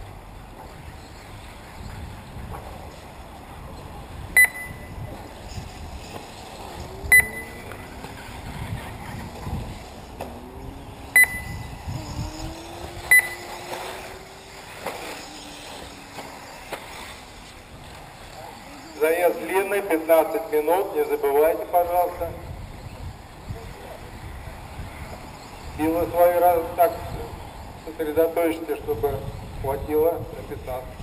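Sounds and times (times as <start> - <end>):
short high electronic beeps: 4.4 - 5.1, 7.1 - 7.7, 11.2 - 11.9, 13.0 - 13.7
electric motor whine: 6.0 - 19.0.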